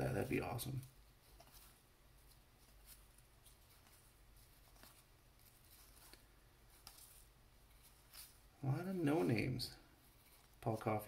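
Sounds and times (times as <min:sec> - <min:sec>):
cards sliding with soft ticks: 0:00.8 - 0:08.5, 0:10.0 - 0:11.0.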